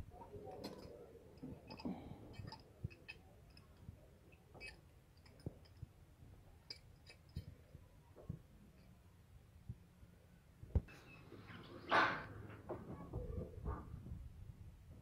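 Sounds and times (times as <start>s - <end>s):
metal hand tools clicking: 0.5s - 5.8s.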